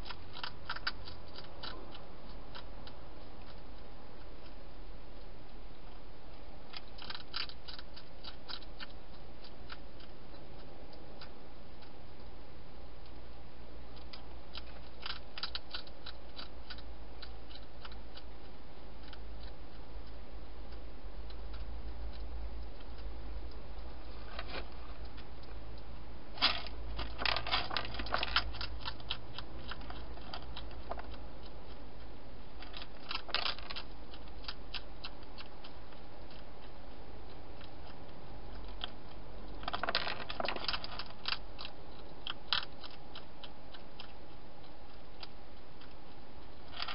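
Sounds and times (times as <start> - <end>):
hedgehog crunching dry food: 0.0 - 12.3, 13.9 - 46.9
steady low hum: 0.0 - 46.9.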